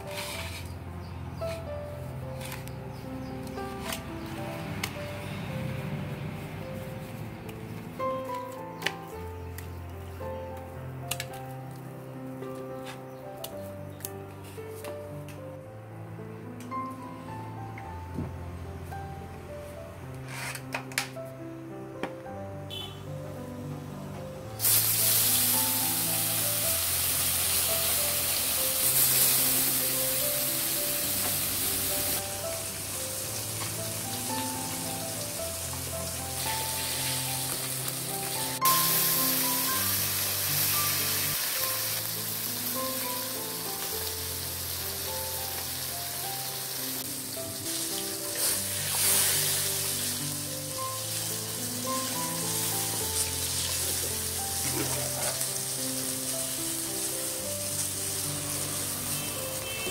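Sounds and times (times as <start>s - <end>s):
slow background music: 0.0s - 59.9s
fish sizzling in hot oil: 24.6s - 59.9s.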